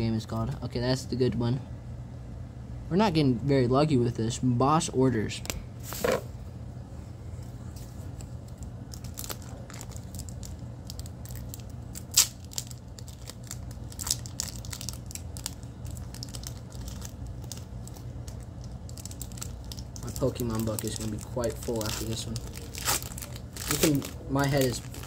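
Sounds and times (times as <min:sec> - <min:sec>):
foil wrapper crinkling and tearing: 0:08.4 - 0:25.0.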